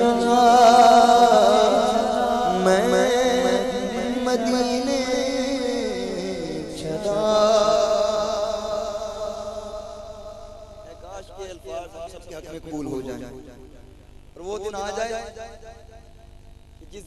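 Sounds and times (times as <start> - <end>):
man singing wordless held notes: 0.0 - 13.4.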